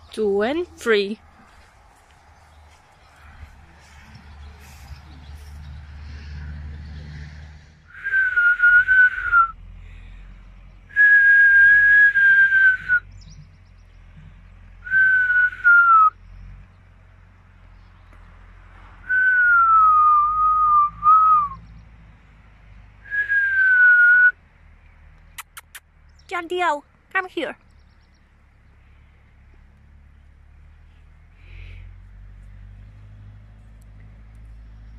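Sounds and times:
person whistling long notes: 7.9 - 9.6, 10.9 - 13.1, 14.8 - 16.2, 19.1 - 21.6, 23.1 - 24.4.

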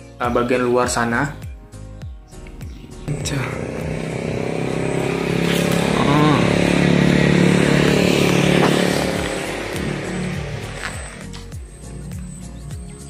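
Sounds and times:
vehicle engine passing by: 2.9 - 11.4.

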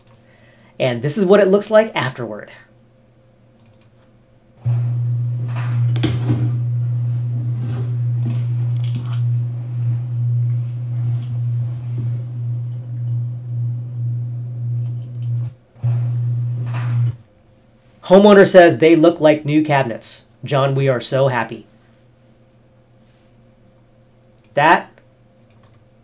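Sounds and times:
loud low hum: 4.6 - 17.3.

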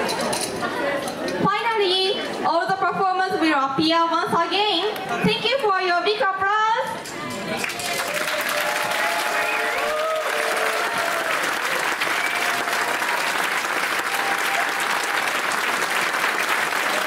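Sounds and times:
audience clapping: 7.5 - 17.0.

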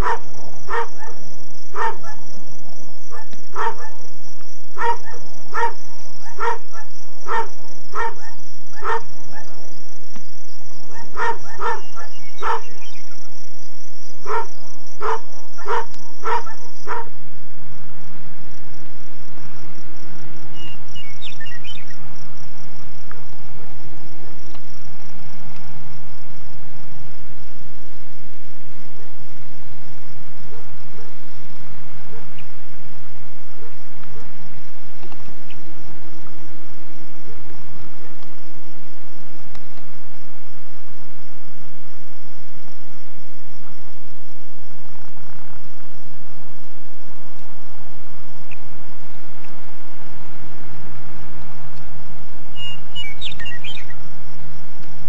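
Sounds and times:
dog barking: 0.0 - 1.2, 1.8 - 2.2, 3.1 - 4.0, 4.8 - 9.6, 10.9 - 12.7, 14.2 - 17.1
high-pitched insect trill: 0.0 - 17.3
low steady hum: 0.0 - 55.0.

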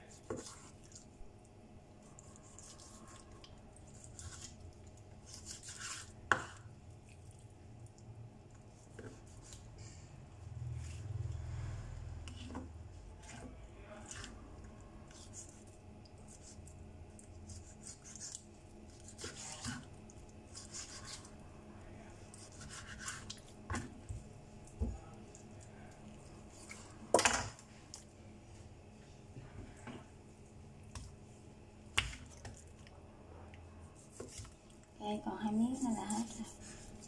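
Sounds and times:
knife scraping on cutting board: 0.2 - 0.8, 19.0 - 19.9.

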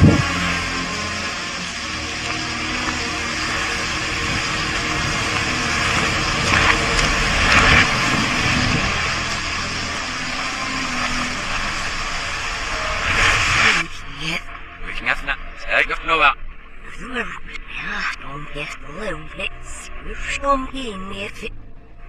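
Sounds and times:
heavy rain: 0.0 - 14.0
wind: 0.0 - 22.0.

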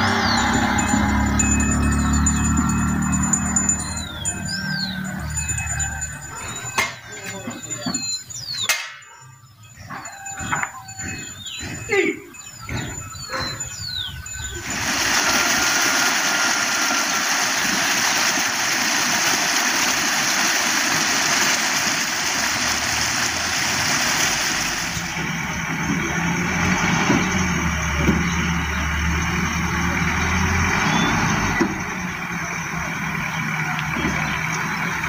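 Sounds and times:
loud road noise rush: 0.0 - 6.4, 14.5 - 35.0
engine low hum: 0.0 - 6.8, 12.6 - 35.0.

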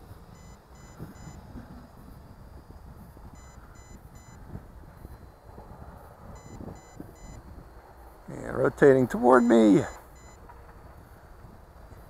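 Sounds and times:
wind rumble on microphone: 0.0 - 12.0
quick electronic beeps: 0.4 - 1.4, 3.4 - 4.4, 6.4 - 7.4, 9.3 - 10.4.

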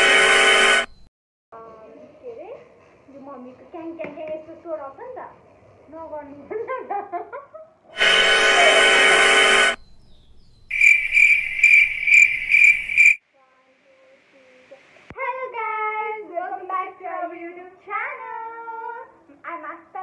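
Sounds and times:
loud music blast: 8.0 - 9.8
cricket chirping: 9.4 - 13.2
girl singing: 14.4 - 20.0.

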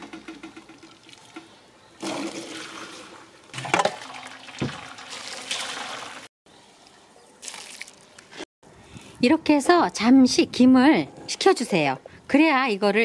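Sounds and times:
liquid splashing and trickling: 0.6 - 6.3, 7.4 - 8.2.

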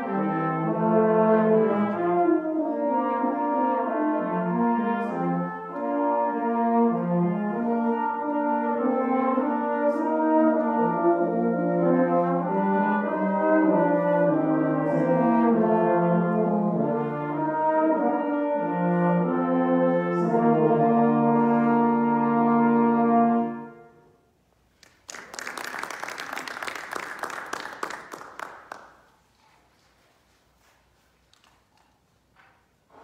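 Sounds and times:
brass quartet playing a carol: 0.0 - 24.3
applause: 24.7 - 29.9.

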